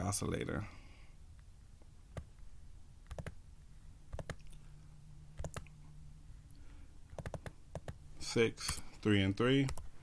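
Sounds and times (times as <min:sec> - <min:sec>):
faint low hum: 0:00.0 - 0:10.0
computer mouse clicking: 0:03.0 - 0:03.4, 0:04.1 - 0:04.6, 0:05.4 - 0:05.8, 0:07.1 - 0:08.0, 0:09.6 - 0:09.9.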